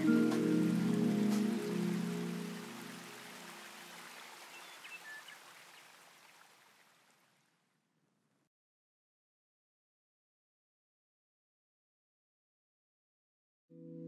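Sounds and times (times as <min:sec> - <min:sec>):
background music: 0:00.0 - 0:03.7, 0:13.8 - 0:14.0.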